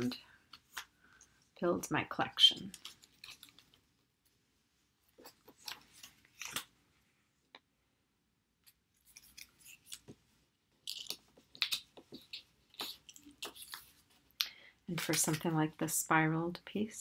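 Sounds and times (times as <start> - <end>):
paper rustling: 5.1 - 6.8, 9.0 - 14.3.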